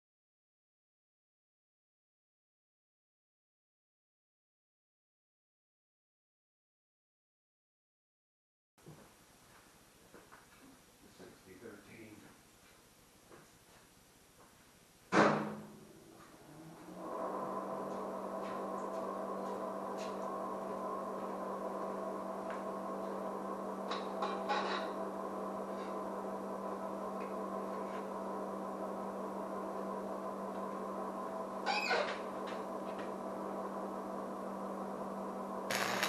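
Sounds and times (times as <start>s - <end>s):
sharp clunk: 15.1s - 15.7s
steady electrical hum: 15.7s - 36.0s.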